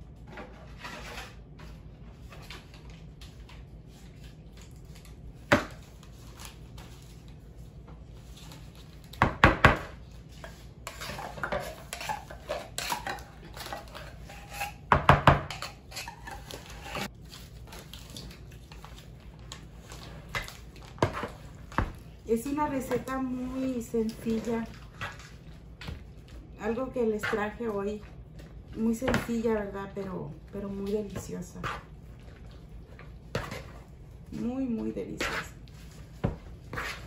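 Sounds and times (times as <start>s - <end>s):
spoon stirring fruit: 10.3s - 17.1s.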